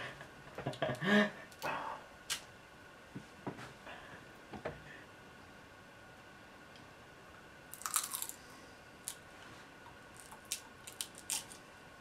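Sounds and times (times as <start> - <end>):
chewing crunchy insect shell: 7.7 - 8.4, 10.1 - 11.6.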